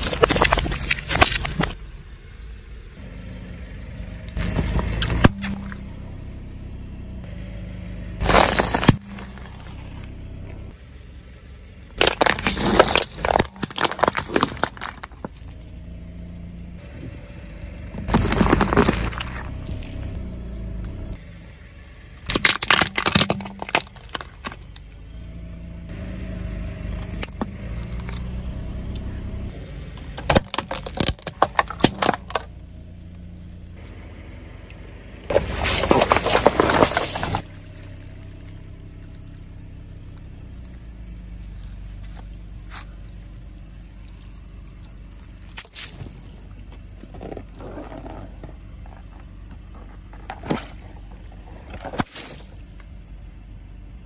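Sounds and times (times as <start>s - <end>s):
tyre crushing plastic containers: 0.0s - 1.7s, 8.2s - 9.8s, 12.0s - 15.4s, 18.0s - 20.0s, 22.3s - 24.8s, 30.2s - 32.5s, 35.3s - 37.5s
car engine running: 0.0s - 54.0s.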